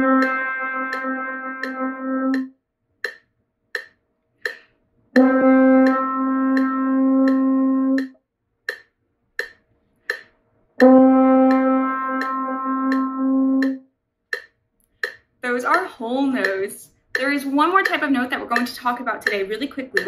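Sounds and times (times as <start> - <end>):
french horn long notes: 0.0 - 2.5, 5.2 - 8.1, 10.8 - 13.8
metronome clicking: 0.0 - 20.0.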